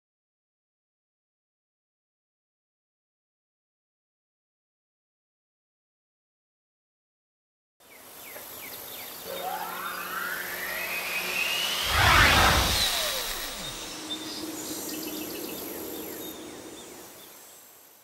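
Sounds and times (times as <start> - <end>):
shimmering tail with low hum: 9.2 - 17.5
whoosh sound effect: 10.6 - 14.0.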